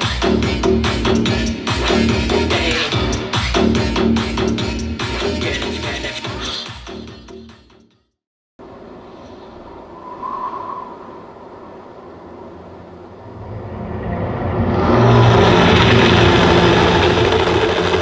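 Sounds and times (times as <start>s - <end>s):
low rumble: 9.6s - 18.0s
heavy engine-like noise: 12.1s - 18.0s.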